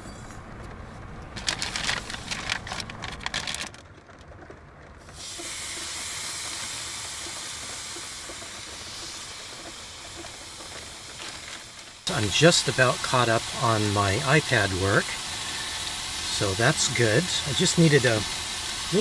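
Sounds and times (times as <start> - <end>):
plastic bag crinkling: 1.3 - 5.0, 10.7 - 12.0
patties sizzling in a pan: 5.2 - 19.0.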